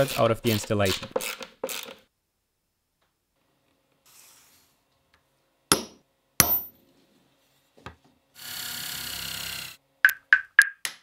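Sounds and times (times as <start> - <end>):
sharp knocks: 5.7 - 6.7.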